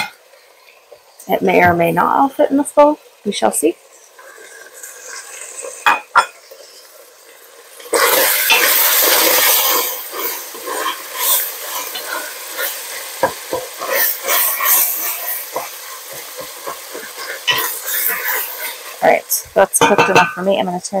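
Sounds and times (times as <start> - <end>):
beef sizzling in a pot: 0.0 - 21.0.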